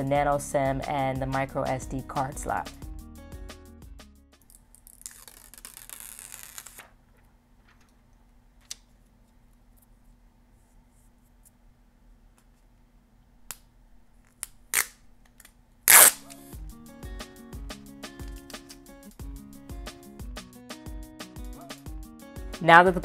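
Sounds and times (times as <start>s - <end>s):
plastic film crackling as peeled: 4.4s - 7.0s
film ripping off: 4.5s - 7.0s, 14.5s - 15.1s, 15.9s - 16.4s.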